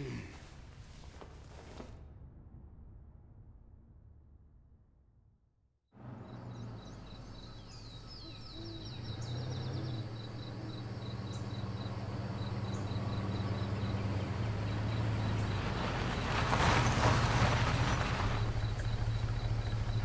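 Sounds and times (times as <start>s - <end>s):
car engine humming: 6.0s - 20.0s
crickets chirping: 6.0s - 20.0s.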